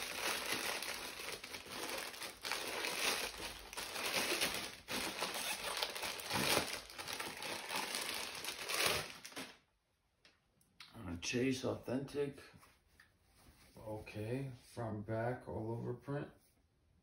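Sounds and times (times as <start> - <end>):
paper wrapping rustling: 0.0 - 9.6.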